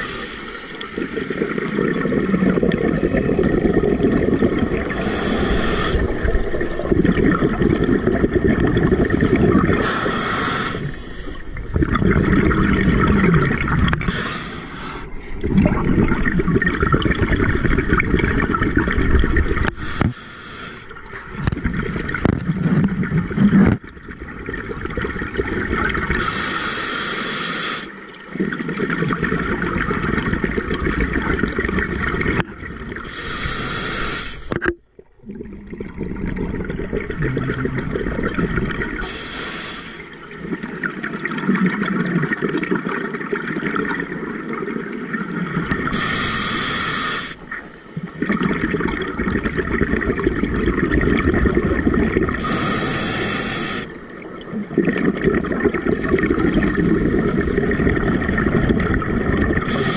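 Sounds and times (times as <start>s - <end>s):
regulator inhale hiss: 0.0s - 1.4s, 4.9s - 6.3s, 9.7s - 11.6s, 14.1s - 15.2s, 19.7s - 20.9s, 26.2s - 28.0s, 33.0s - 34.5s, 39.0s - 40.2s, 45.9s - 47.9s, 52.4s - 54.0s, 59.6s - 59.9s
exhaled bubbles rushing: 0.8s - 9.9s, 10.7s - 14.2s, 15.2s - 19.8s, 21.0s - 26.3s, 28.2s - 33.1s, 34.5s - 39.1s, 40.0s - 46.1s, 47.4s - 52.6s, 53.8s - 59.9s.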